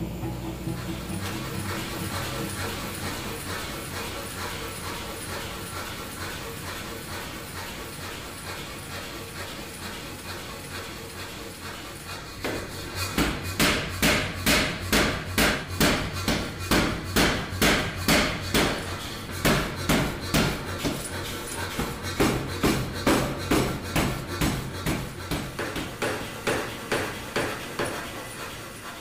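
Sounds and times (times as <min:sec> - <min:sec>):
power hammer striking steel: 0:00.6 - 0:06.0, 0:12.4 - 0:28.0.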